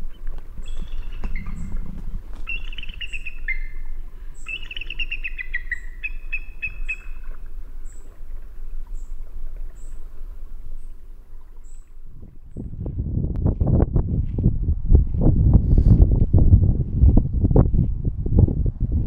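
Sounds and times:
steady low rumble: 0:00.0 - 0:04.5, 0:12.0 - 0:19.0
eagle chattering calls: 0:00.6 - 0:07.3.

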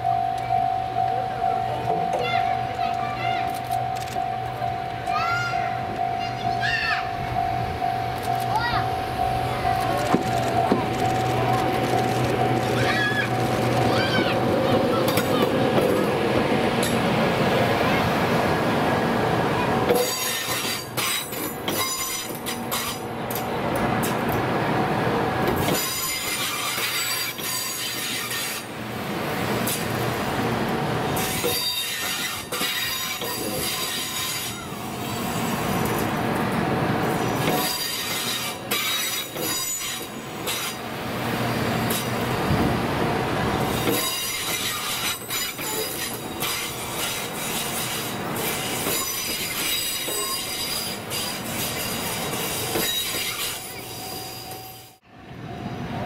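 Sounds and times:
train passing on track: 0:00.0 - 0:56.0
wheels squealing on rails: 0:01.4 - 0:16.2, 0:19.4 - 0:23.4, 0:25.5 - 0:28.7, 0:31.1 - 0:36.2, 0:36.9 - 0:42.3, 0:43.6 - 0:55.7.

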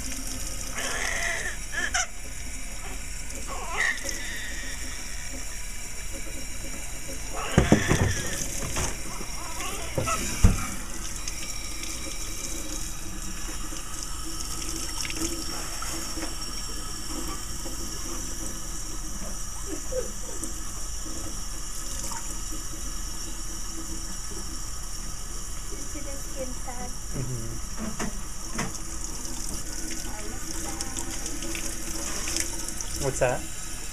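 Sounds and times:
faucet running into sink: 0:00.0 - 0:33.9
baby crying: 0:00.8 - 0:02.1, 0:03.5 - 0:05.1, 0:07.3 - 0:08.4, 0:09.1 - 0:10.4.

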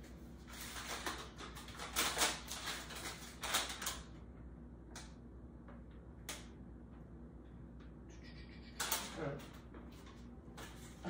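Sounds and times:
paper rustling and crinkling: 0:00.1 - 0:04.1.

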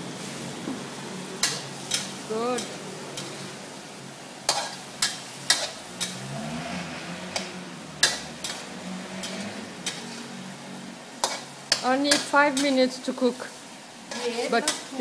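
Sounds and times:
frying sizzle: 0:00.0 - 0:15.0
spatula clacking against wok: 0:01.4 - 0:03.4, 0:04.5 - 0:06.3, 0:07.3 - 0:10.2, 0:11.2 - 0:12.8, 0:14.1 - 0:15.0.

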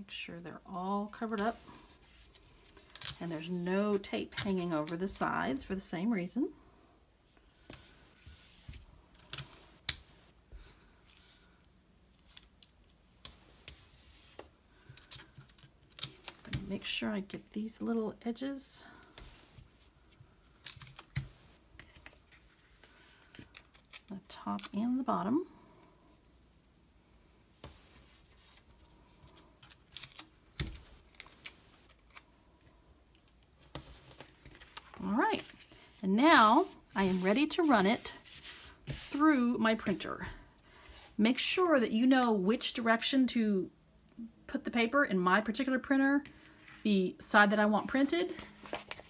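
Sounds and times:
tape and paper crinkling: 0:20.5 - 0:24.9, 0:27.6 - 0:32.3, 0:47.9 - 0:49.0.

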